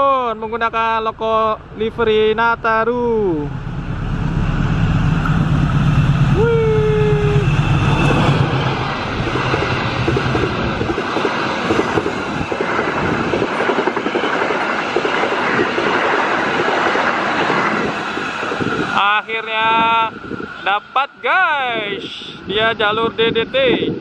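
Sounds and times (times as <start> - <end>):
locomotive engine rumble: 0.0 - 14.0
train wheels clickety-clack: 9.2 - 19.0.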